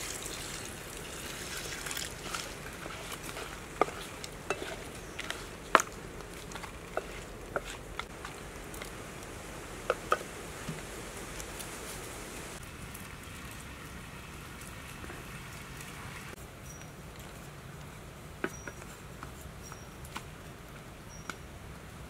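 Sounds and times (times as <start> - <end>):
sauce sizzling in a frying pan: 0.0 - 5.4.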